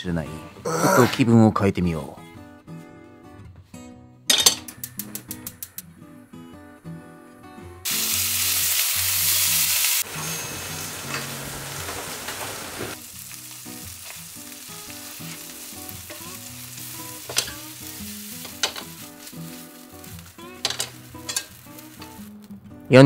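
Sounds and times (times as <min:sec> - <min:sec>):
food sizzling in a frying pan: 0:07.9 - 0:22.4
chopsticks tapping a pan: 0:17.2 - 0:17.8, 0:18.4 - 0:19.6, 0:20.6 - 0:22.2.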